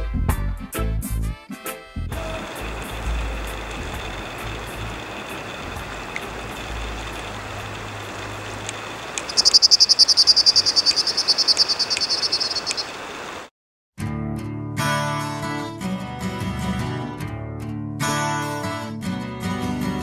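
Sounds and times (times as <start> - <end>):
river water rushing: 2.2 - 13.5.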